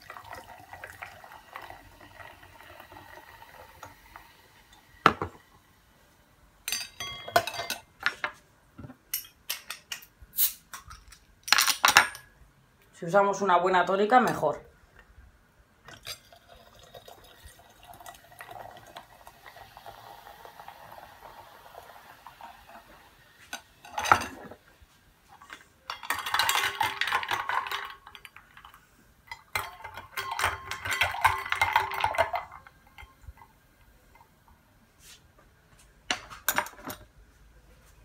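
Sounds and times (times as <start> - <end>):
liquid pouring into glass: 0.0 - 4.9, 15.9 - 22.8
spoon and ice clinking on glass: 6.7 - 7.9, 25.9 - 28.7, 29.3 - 33.2.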